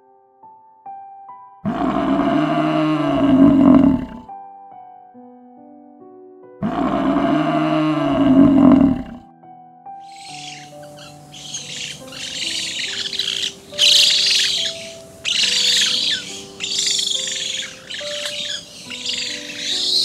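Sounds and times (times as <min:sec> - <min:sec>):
soft piano notes: 0:00.0 - 0:20.0
birds chattering: 0:10.0 - 0:20.0.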